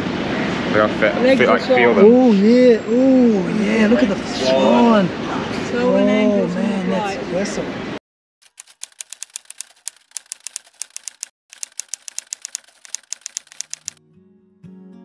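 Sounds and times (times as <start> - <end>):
typewriter key clicks: 8.5 - 14.0.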